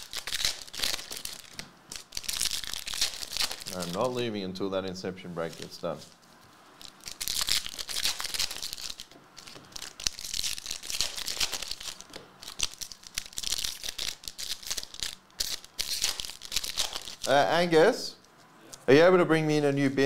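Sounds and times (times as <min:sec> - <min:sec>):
card wrappers crinkling and tearing: 0:00.0 - 0:04.2, 0:05.4 - 0:06.2, 0:06.8 - 0:17.4.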